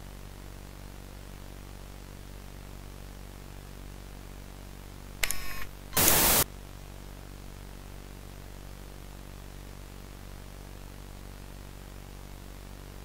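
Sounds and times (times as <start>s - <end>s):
low electrical hum: 0.0s - 13.0s
faint hiss: 5.2s - 6.5s
television static burst: 5.2s - 6.5s.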